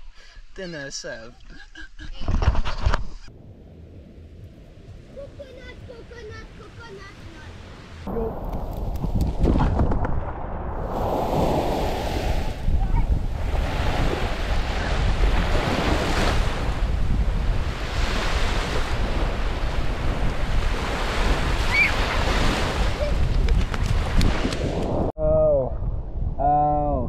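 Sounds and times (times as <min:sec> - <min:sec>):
wind buffeting microphone: 0:03.3 - 0:27.0
surf washing onto beach: 0:03.8 - 0:25.1.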